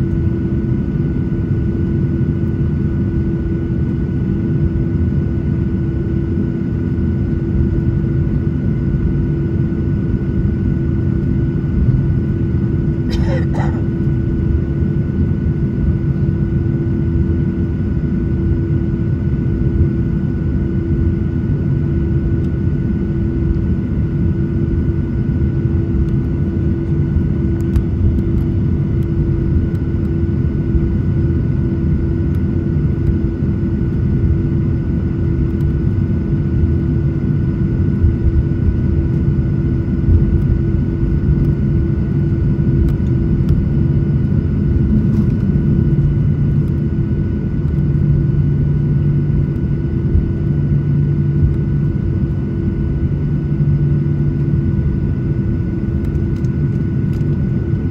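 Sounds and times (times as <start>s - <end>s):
jet engines rumbling in cabin: 0.0s - 57.9s.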